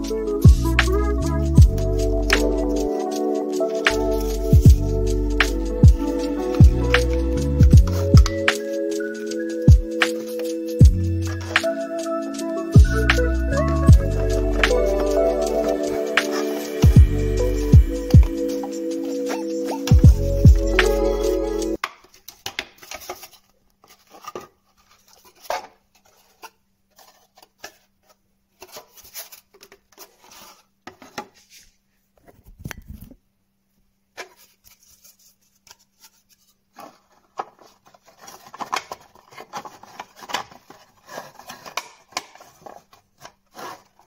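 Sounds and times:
plastic parts clicking and tapping: 36.8 - 43.9.

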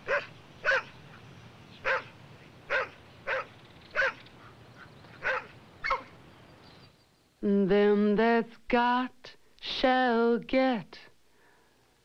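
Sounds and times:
dog barking: 0.0 - 0.9, 1.8 - 2.1, 2.7 - 4.2, 5.2 - 6.1.

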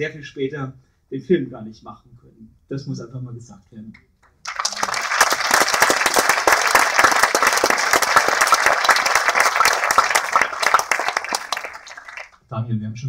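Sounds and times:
audience applauding: 4.4 - 12.4.

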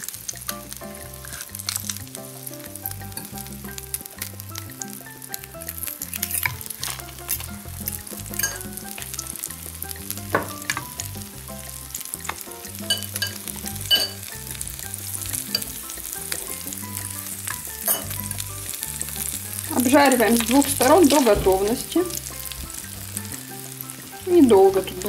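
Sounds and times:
bread sizzling in frying pan: 0.0 - 25.0
metal forks clicking against pan: 6.0 - 7.6, 8.3 - 9.2, 12.3 - 14.3, 15.4 - 18.3.

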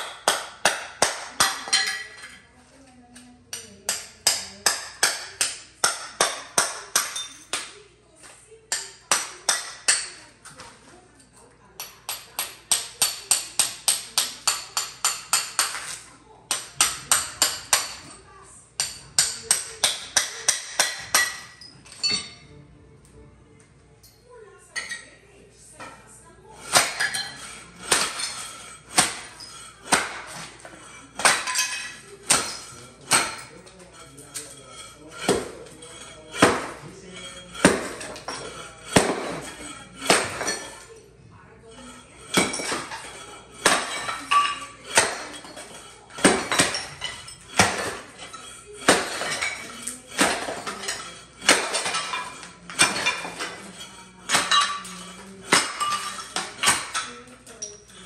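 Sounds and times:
hammer striking hard material: 26.6 - 40.7, 41.8 - 57.2.

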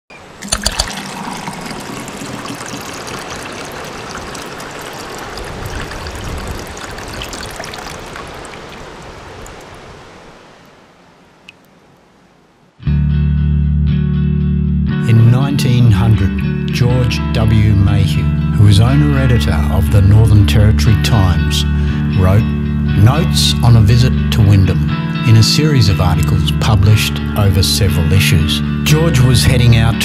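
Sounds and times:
rushing water: 0.1 - 12.4
guitar music: 12.8 - 30.0.

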